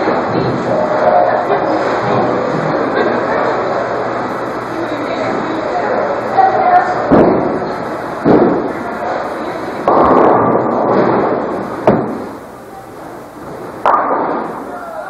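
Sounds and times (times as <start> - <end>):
bowling pins crashing: 9.8 - 12.4, 13.8 - 14.8
sharp knocks: 9.9 - 12.3.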